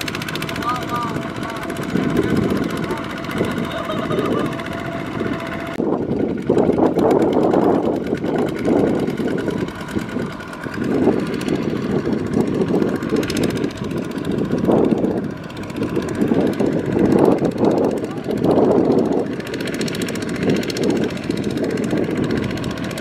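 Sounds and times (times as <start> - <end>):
diesel engines running under load: 0.0 - 23.0.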